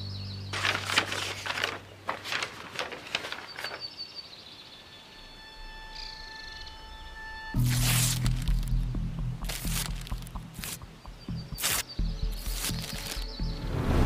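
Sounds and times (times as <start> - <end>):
quiet background music: 0.0 - 14.0
paper rustling: 0.5 - 4.0, 7.6 - 8.8, 9.4 - 10.8, 11.6 - 11.8, 12.4 - 13.3.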